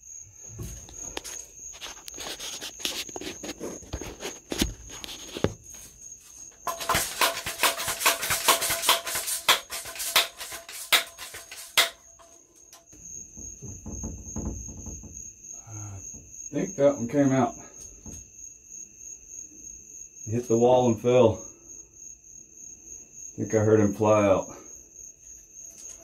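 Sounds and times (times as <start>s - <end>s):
cricket chirring: 0.0s - 26.0s
rustling and rattling objects: 0.4s - 15.2s.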